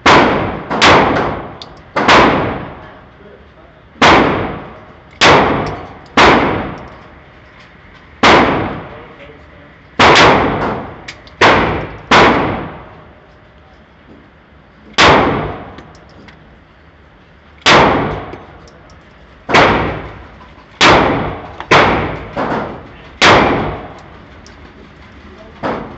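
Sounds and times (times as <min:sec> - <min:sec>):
handgun shots echoing: 0:00.0 - 0:02.8, 0:04.0 - 0:07.0, 0:10.0 - 0:12.9, 0:17.6 - 0:18.5, 0:20.8 - 0:24.1.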